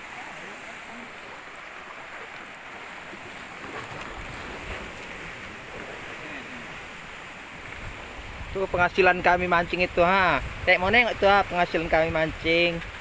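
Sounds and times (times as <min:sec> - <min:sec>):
sea water wash: 0:00.0 - 0:13.0
wind rumbling on microphone: 0:03.2 - 0:13.0.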